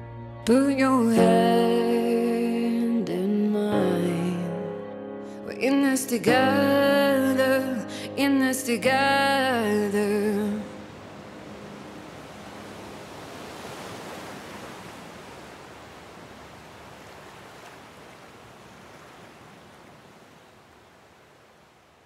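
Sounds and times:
sea surf washing on shore: 0:08.3 - 0:22.0.

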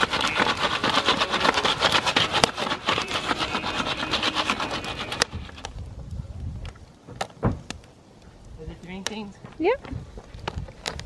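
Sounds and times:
popcorn pan rattling and scraping: 0:00.0 - 0:05.7.

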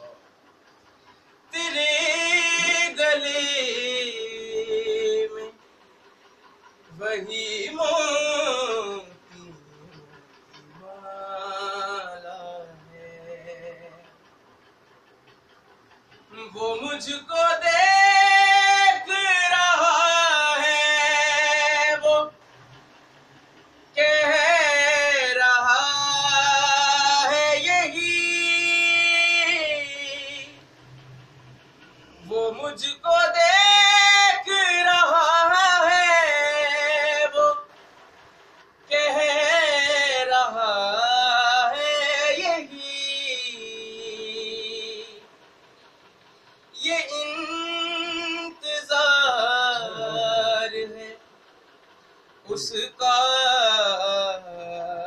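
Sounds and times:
person singing a devotional lament: 0:01.5 - 0:05.6, 0:06.9 - 0:14.1, 0:16.3 - 0:22.3, 0:24.0 - 0:30.6, 0:32.2 - 0:37.7, 0:38.9 - 0:45.2, 0:46.8 - 0:51.2, 0:52.4 - 0:55.0.

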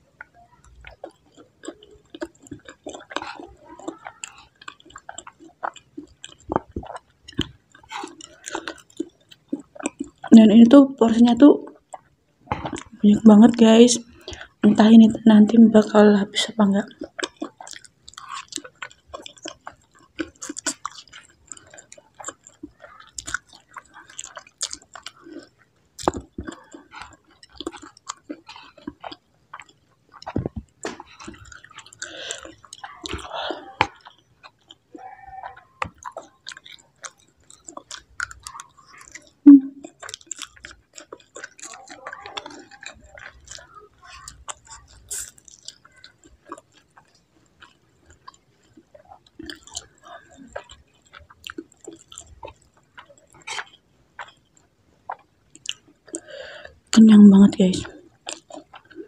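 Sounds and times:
close chewing mouth clicks and smacks: 0:00.1 - 0:10.8, 0:11.6 - 0:59.0
noodles slurped: 0:30.2 - 0:47.2.

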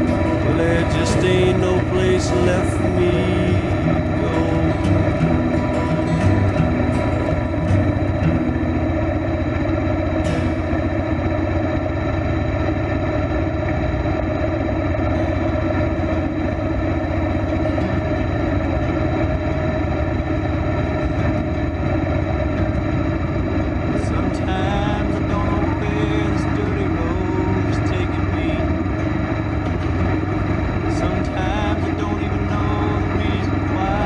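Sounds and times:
motorcycle engine running: 0:00.0 - 0:34.0.

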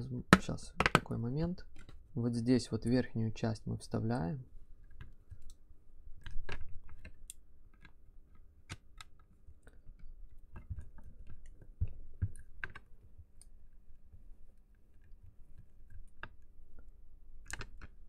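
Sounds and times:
plastic case clicking and snapping: 0:00.4 - 0:01.1, 0:17.4 - 0:18.0.

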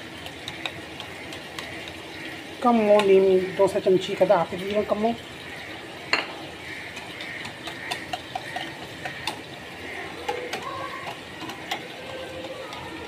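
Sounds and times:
whisk clicking against plate: 0:07.0 - 0:09.5, 0:10.2 - 0:13.0.

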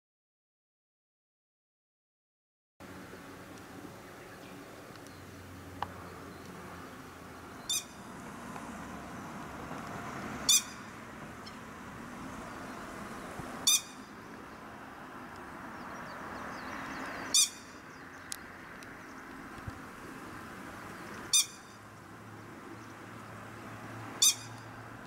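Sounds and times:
steady background noise: 0:02.8 - 0:25.0
lapwing calls: 0:07.5 - 0:08.1, 0:10.3 - 0:14.6, 0:16.6 - 0:18.2, 0:20.9 - 0:21.8, 0:24.2 - 0:24.7.

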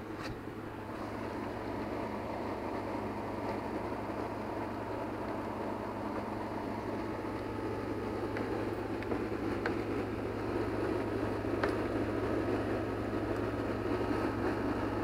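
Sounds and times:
steady rushing hum: 0:00.0 - 0:15.0.

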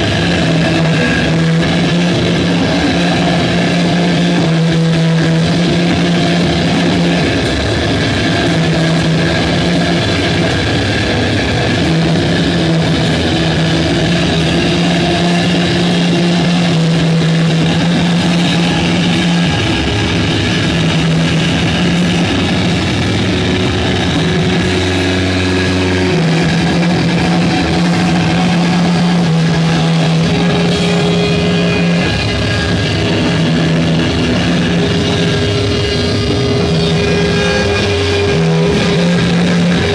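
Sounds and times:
cymbals: 0:00.0 - 0:39.9
distorted electric guitar: 0:00.0 - 0:39.9
live rock band playing: 0:00.0 - 0:39.9.

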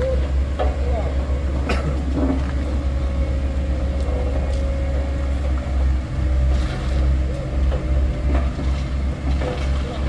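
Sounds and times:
heavy vehicle engine rumbling: 0:00.0 - 0:10.0.

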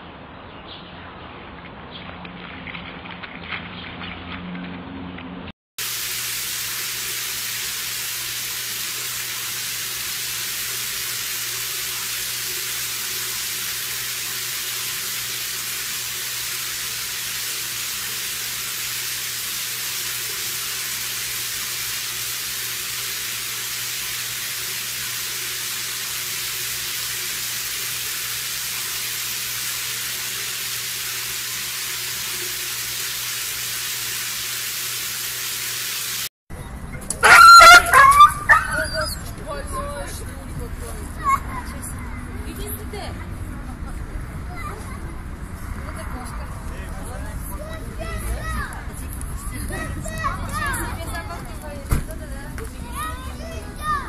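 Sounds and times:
steady hiss: 0:05.8 - 0:36.3.

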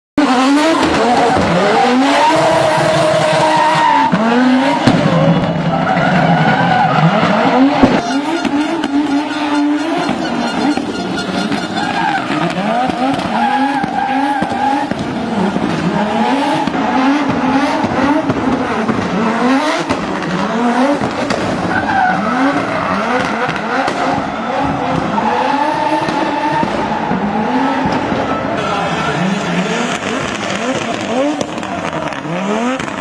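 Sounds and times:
rally car engine revving: 0:00.2 - 0:33.0
tyres squealing: 0:05.8 - 0:14.9.

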